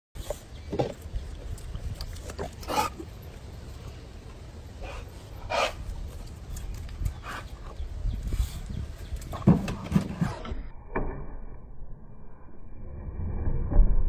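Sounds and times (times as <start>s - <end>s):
dog making sharp sounds: 4.8s - 5.9s
low rumble: 10.4s - 14.0s.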